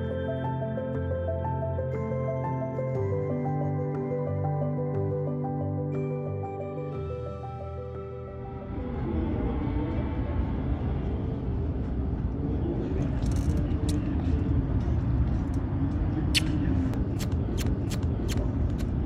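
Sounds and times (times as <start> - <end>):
traffic rumble: 8.3 - 19.0.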